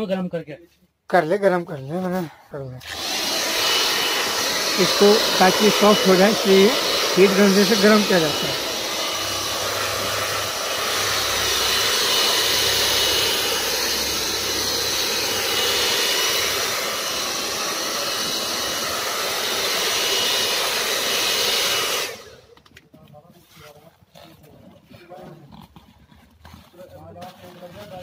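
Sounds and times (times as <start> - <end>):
heat gun fan whining: 2.8 - 22.7.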